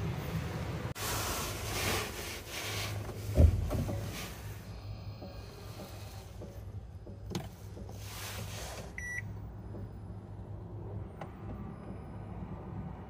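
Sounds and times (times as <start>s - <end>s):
short electronic beep: 9.0s - 9.2s.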